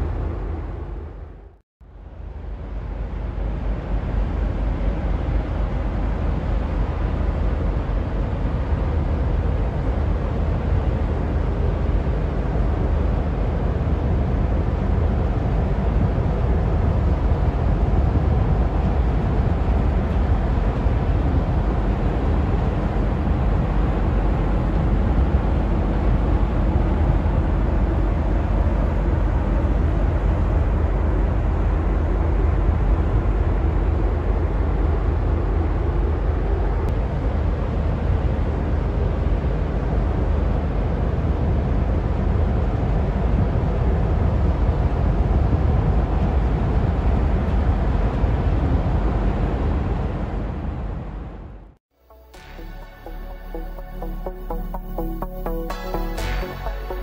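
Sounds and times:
low diesel engine rumble: 52.5s - 57.0s.

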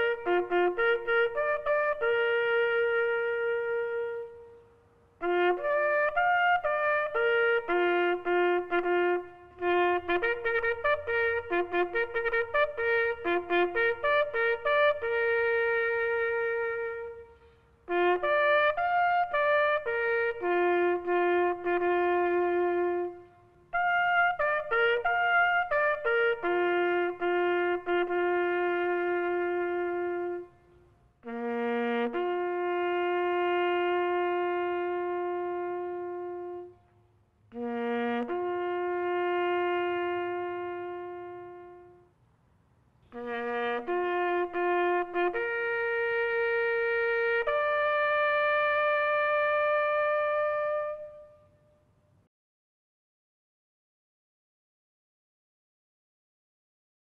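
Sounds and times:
solo bugle call: 0.0s - 42.2s, 43.0s - 52.0s.

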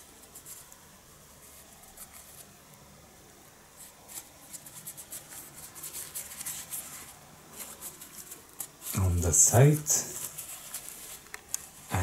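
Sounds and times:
toilet paper rustling and crackling: 3.8s - 12.0s.

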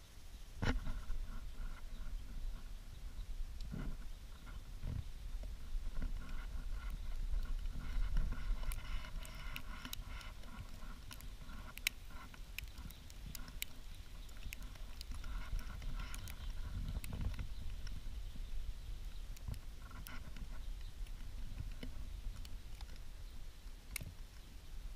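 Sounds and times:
wind buffeting microphone: 0.6s - 23.5s
light ticks and clicks: 5.4s - 18.1s, 18.9s - 24.6s.

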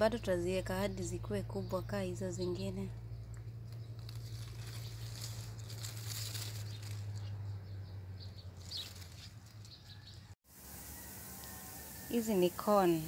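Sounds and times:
leaves rustling being handled: 3.6s - 7.6s, 8.3s - 10.0s.

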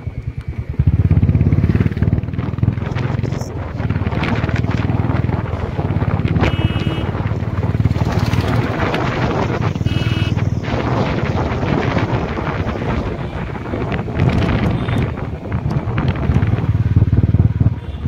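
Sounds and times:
small vehicle engine running: 0.0s - 13.0s
wind noise on microphone: 0.0s - 18.0s.

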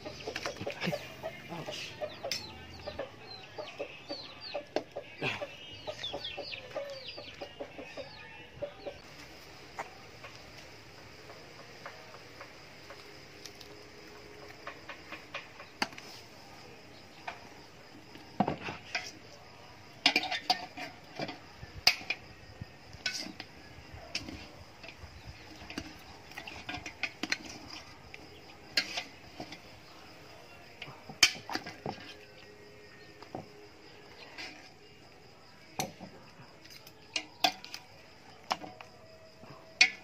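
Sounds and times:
metal ladle scraping in pot: 20.0s - 22.2s, 22.9s - 23.5s, 25.6s - 29.9s, 34.1s - 34.8s.

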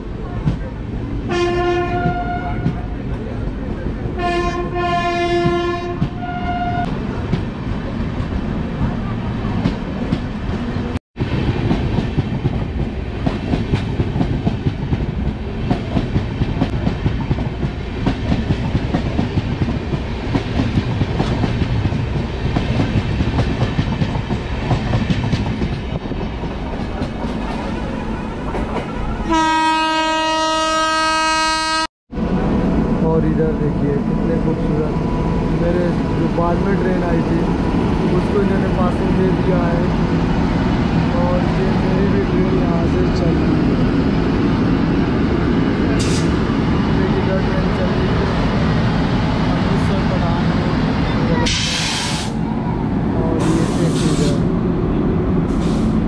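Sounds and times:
train wheels rumbling over rails: 0.0s - 29.6s, 32.2s - 56.0s
locomotive horn blowing steadily: 1.3s - 2.7s, 4.2s - 6.9s, 29.3s - 31.9s
train horn: 1.3s - 2.8s, 4.2s - 6.9s, 29.2s - 31.9s.

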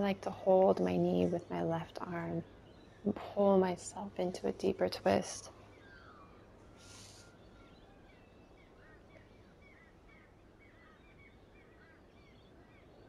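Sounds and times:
small birds chirping: 0.0s - 13.0s
brief soft hiss: 6.8s - 7.4s.

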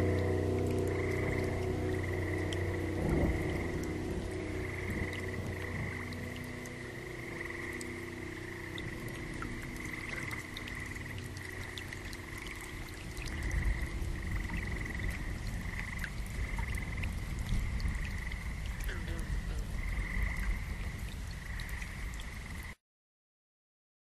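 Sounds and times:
low rumble: 0.0s - 21.6s
frogs trilling: 0.0s - 22.8s.

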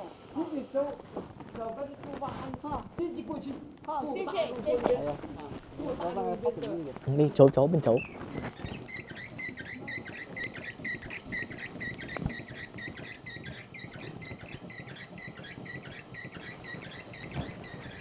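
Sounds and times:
hand-cranked machine squeaking: 4.8s - 18.0s.

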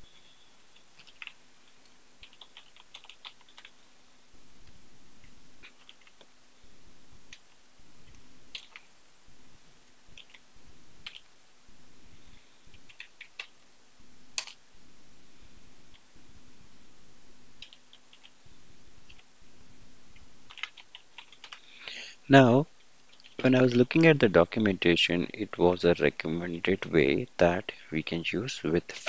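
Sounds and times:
faint low hum: 0.0s - 29.0s
computer keyboard keystrokes: 1.0s - 1.4s, 2.2s - 3.7s, 8.5s - 8.9s, 10.2s - 10.4s, 11.0s - 11.3s, 12.8s - 13.5s, 17.6s - 18.3s, 20.5s - 21.6s.

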